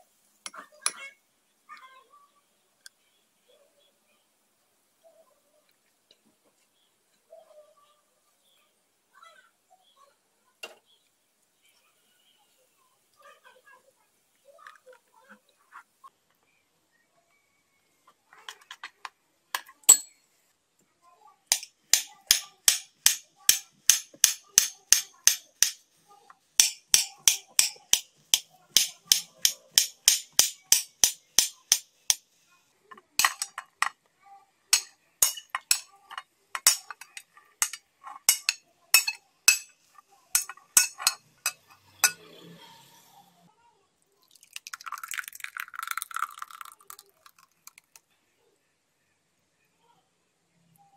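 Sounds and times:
metal spoon clinking glass bowl: 0:19.9 - 0:20.2, 0:34.8 - 0:39.7, 0:40.4 - 0:42.3, 0:44.7 - 0:47.4.

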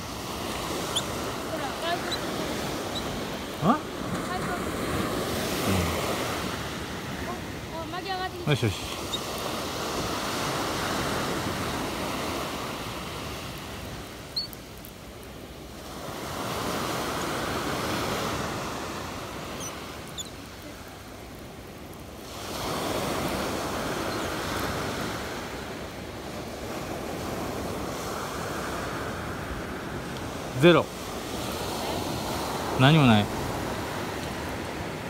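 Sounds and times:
surf breaking on pebble beach: 0:15.7 - 0:21.1, 0:22.1 - 0:35.0.

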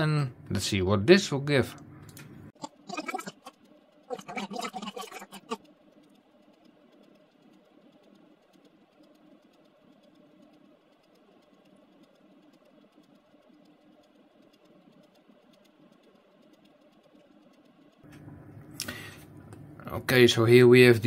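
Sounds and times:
faint room hum: 0:00.0 - 0:21.0
light ticks: 0:05.3 - 0:19.7.

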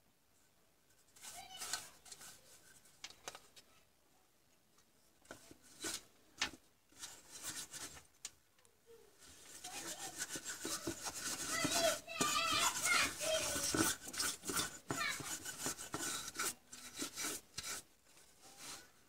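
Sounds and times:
brush scrubbing circuit board: 0:07.0 - 0:08.0, 0:09.2 - 0:18.9.

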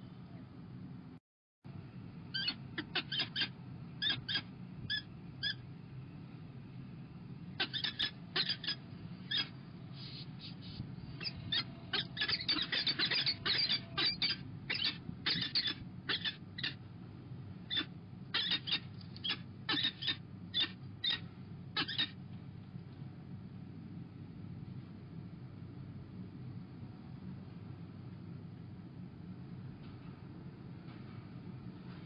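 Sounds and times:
falcon nestlings begging cheeps: 0:02.3 - 0:05.6, 0:07.6 - 0:16.8, 0:17.6 - 0:22.2.

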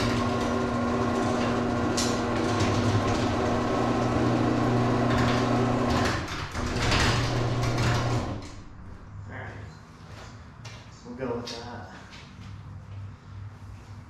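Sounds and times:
garage door rattling: 0:00.0 - 0:09.0
garage door motor hum: 0:00.0 - 0:09.2.

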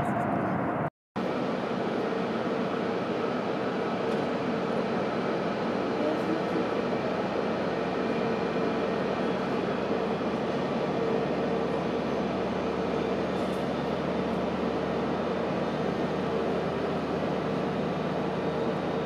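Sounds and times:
jet engines idling muffled: 0:00.0 - 0:19.0.

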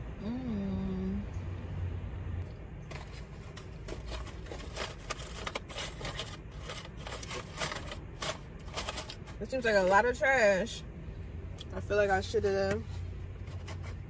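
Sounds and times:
low steady hum: 0:00.0 - 0:14.0
paper crinkling and rustling: 0:02.9 - 0:09.8.

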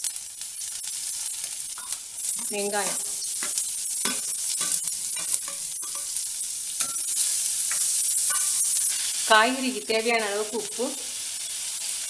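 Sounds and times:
onions sizzling in oil: 0:00.0 - 0:12.0
spoon clicking against pan: 0:01.8 - 0:06.2, 0:07.7 - 0:08.6.

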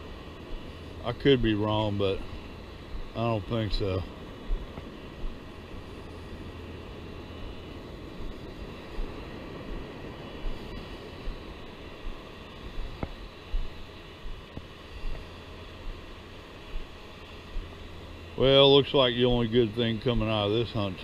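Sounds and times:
wind: 0:00.0 - 0:21.0
soft low thumps: 0:12.8 - 0:15.2.

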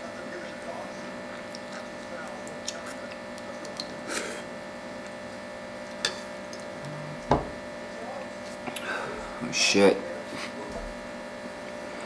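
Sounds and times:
steady electrical hum: 0:00.0 - 0:12.0
chewing: 0:01.5 - 0:04.0.

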